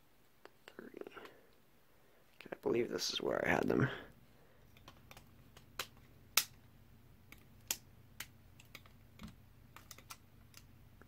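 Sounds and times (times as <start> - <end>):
plastic bricks clicking together: 7.3 - 10.7.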